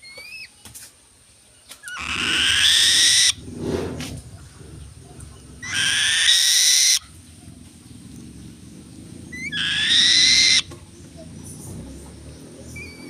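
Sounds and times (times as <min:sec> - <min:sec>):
soft low bird sound: 0:01.5 - 0:13.0
raptor screeching: 0:01.9 - 0:07.4, 0:09.0 - 0:10.7.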